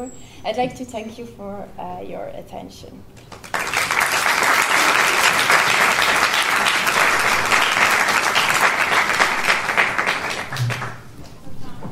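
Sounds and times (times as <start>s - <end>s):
audience applauding: 3.2s - 11.2s.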